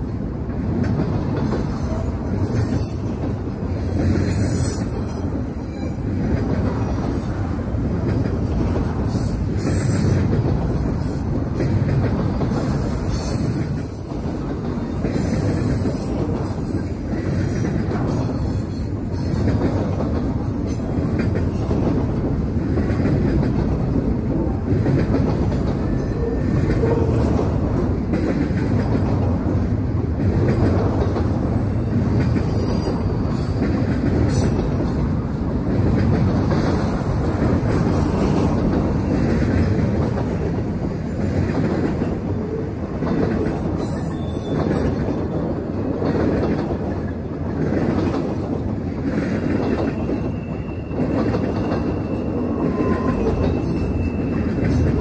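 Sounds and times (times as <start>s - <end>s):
train wheels rumbling on rail: 0.0s - 55.0s
wheel squeals: 43.8s - 44.9s, 49.6s - 55.0s.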